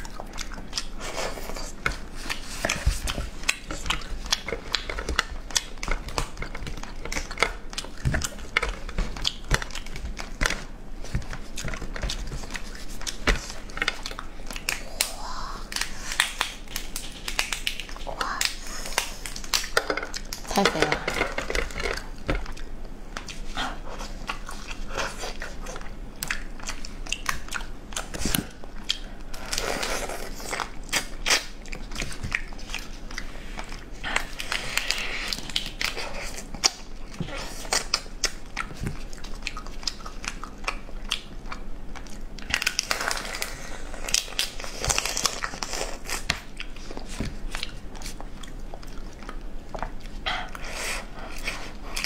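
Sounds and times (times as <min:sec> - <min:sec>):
chewing: 0:00.0 - 0:52.0
crab shell cracking and crunching: 0:03.3 - 0:23.4, 0:34.2 - 0:50.0.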